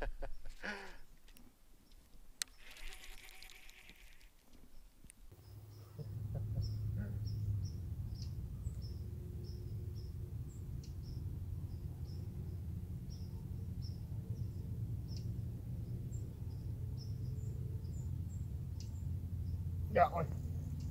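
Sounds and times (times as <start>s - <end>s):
small bird chirping: 1.8s - 20.9s
low outdoor background rumble: 5.2s - 20.9s.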